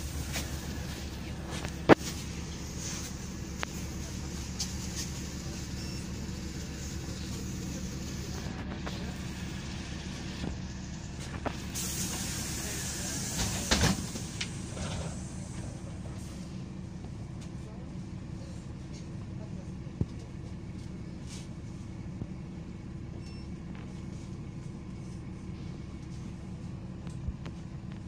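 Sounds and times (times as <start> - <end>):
bus engine idling: 0.0 - 28.0
bus doors thumping shut: 11.5 - 15.7
compressed air hiss: 11.7 - 14.7.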